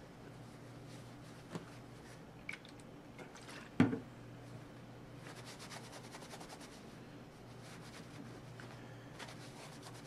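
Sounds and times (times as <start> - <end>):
paper towel rubbing on knife handle: 9.2 - 10.0.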